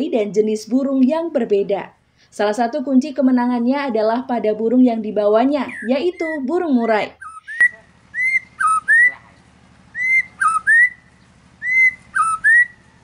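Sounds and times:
bird singing whistled phrases: 5.7 - 12.9.

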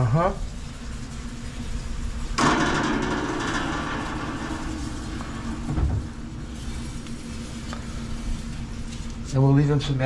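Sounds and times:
low thump: 5.3 - 6.2.

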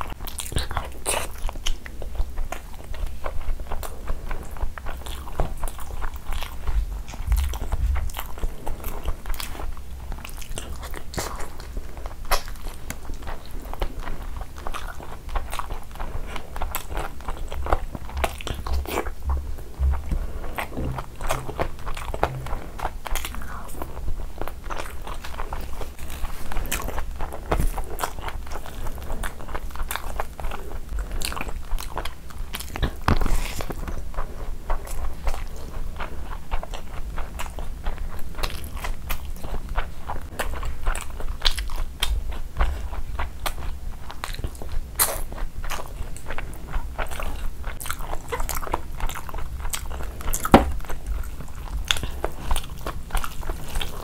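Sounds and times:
chewing and biting food: 0.0 - 54.0
wet mouth sounds: 14.4 - 34.0, 36.6 - 54.0.

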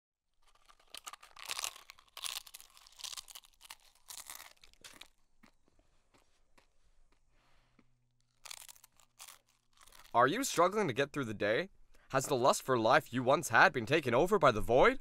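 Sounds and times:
person chewing crunchy food: 0.3 - 10.2.

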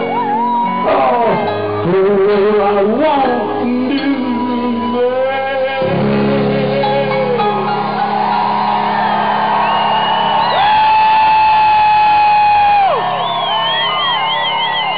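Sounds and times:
live rock band playing: 0.0 - 5.1, 5.8 - 14.9
person singing: 0.0 - 8.5.

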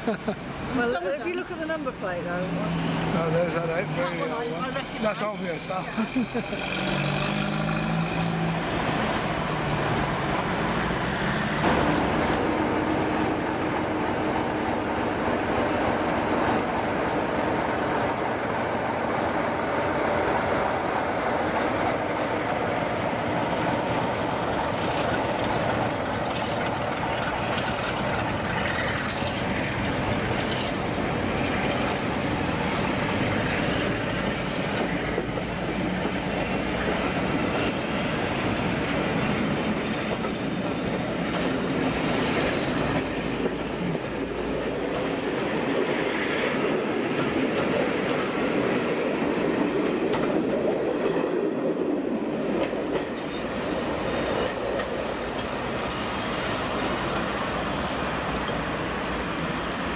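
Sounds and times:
train wheels on rails: 0.0 - 59.9.

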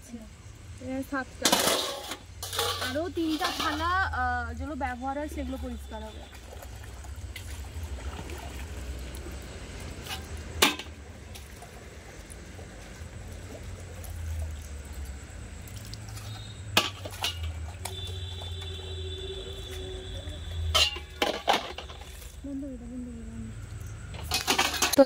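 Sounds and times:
metal plates clinking: 1.4 - 4.1, 16.8 - 17.6, 20.6 - 22.2, 24.2 - 25.0.

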